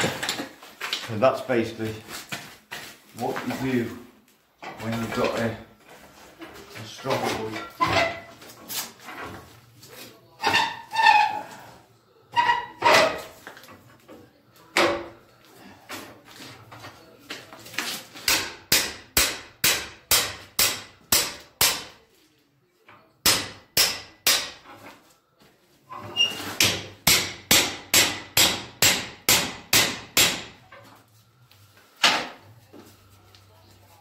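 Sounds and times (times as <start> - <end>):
hammer striking steel: 18.3 - 22.0, 23.2 - 24.6, 26.6 - 30.6.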